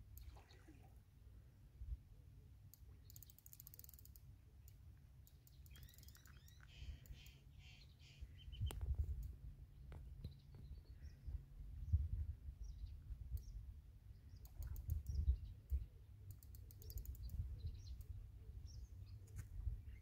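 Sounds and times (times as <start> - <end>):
small birds chirping: 2.7 - 20.0
fishing reel clicking: 2.8 - 6.4, 16.3 - 17.3
wind buffeting microphone: 8.5 - 9.3, 11.0 - 13.7, 14.7 - 15.9.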